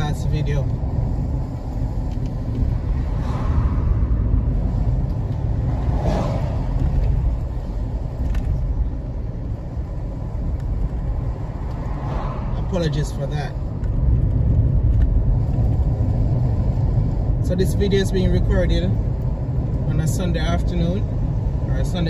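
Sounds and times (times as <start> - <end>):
car engine and tyre rumble: 0.0 - 22.0.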